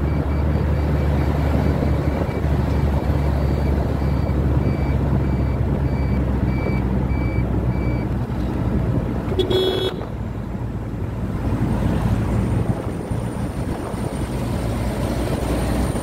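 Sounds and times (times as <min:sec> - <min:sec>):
vehicle road rumble: 0:00.0 - 0:16.0
high electronic beep: 0:03.3 - 0:08.1.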